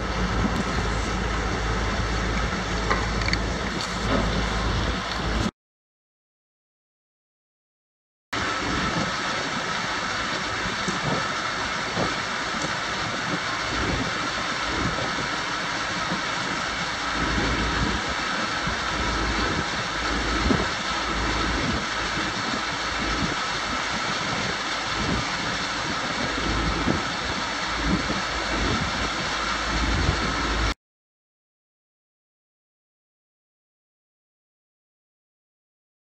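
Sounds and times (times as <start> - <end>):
steady mechanical whine: 0.0 - 5.5, 8.4 - 30.8
wind buffeting microphone: 0.0 - 5.5, 8.4 - 30.8.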